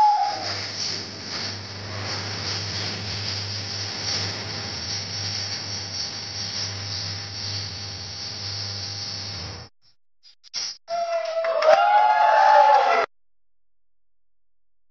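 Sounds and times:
low electrical hum: 0.0s - 9.4s
steady hiss: 0.0s - 9.6s.

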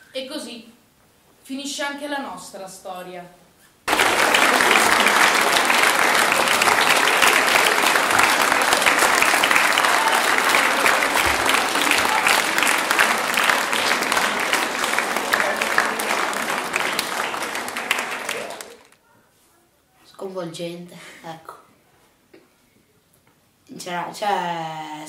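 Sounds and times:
children applauding: 3.9s - 19.0s.

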